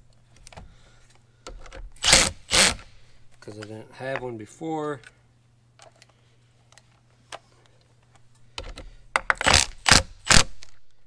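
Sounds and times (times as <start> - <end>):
faint steady hum: 0.0 - 11.0
impact driver running: 2.0 - 2.9.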